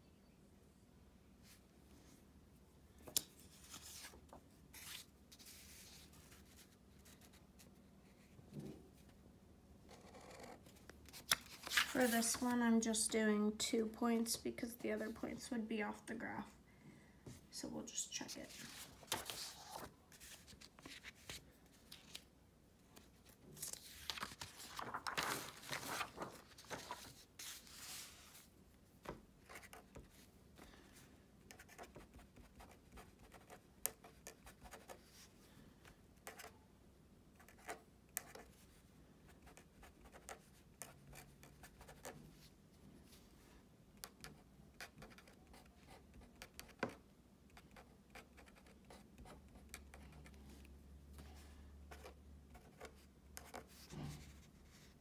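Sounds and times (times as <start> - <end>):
paper rustling: 11.1 - 12.5, 18.4 - 22.3, 23.0 - 28.5.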